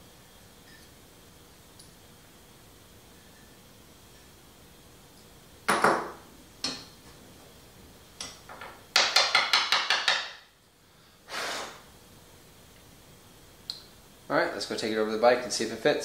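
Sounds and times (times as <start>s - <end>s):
metal tools knocking on wood: 8.5s - 10.4s
short hiss: 11.2s - 11.9s.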